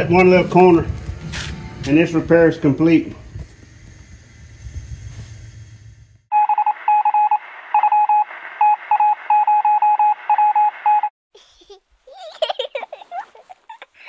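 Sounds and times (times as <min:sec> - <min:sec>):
electronic morse beeps: 0:06.3 - 0:11.1.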